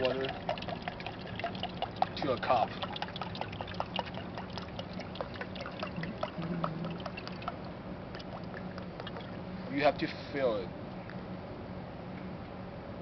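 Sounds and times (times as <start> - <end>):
water pouring into plastic cup: 0.0 - 9.4.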